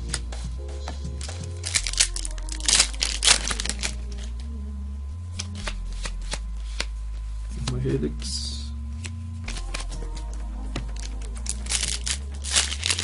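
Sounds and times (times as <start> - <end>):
card clicks: 0.0 - 4.4, 5.4 - 6.9, 9.0 - 13.0
background music with bass line: 0.0 - 6.6, 7.5 - 13.0
foil wrapper crinkling: 1.2 - 4.4, 10.9 - 13.0.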